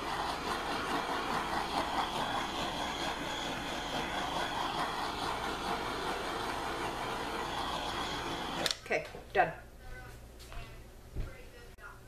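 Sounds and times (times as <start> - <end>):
blowtorch flame hissing: 0.0 - 8.9.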